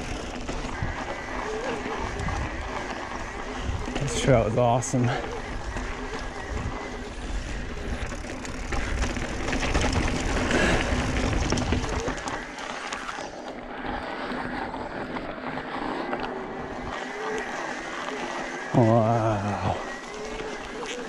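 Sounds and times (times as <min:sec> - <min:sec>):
wind on microphone: 0:00.0 - 0:08.2
bike tyres rolling on rock: 0:00.0 - 0:21.0.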